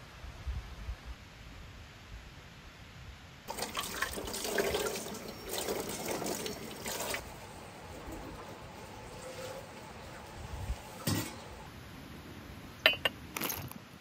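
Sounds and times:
tap water splashing onto dish: 3.5s - 11.6s.

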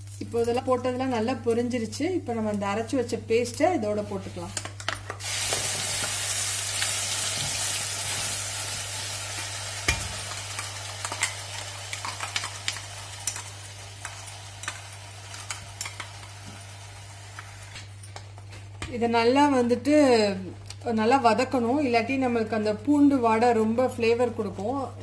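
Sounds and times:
paste sizzling in hot oil: 5.2s - 17.8s.

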